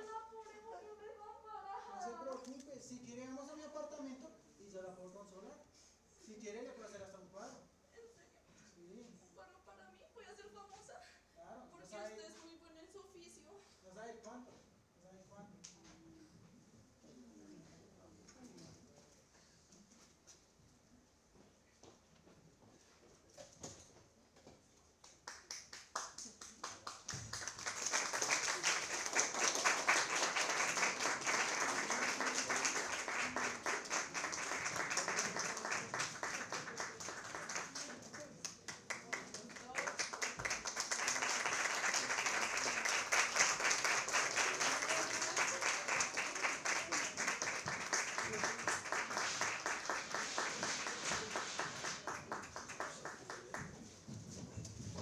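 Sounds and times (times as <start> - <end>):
audience applauding: 25.5 - 53.7.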